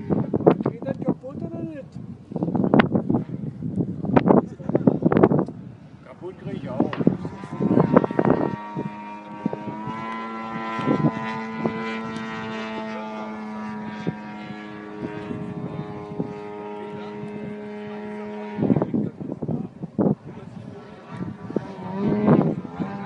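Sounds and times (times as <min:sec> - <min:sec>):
model plane engine and propeller: 0:00.0 - 0:23.0.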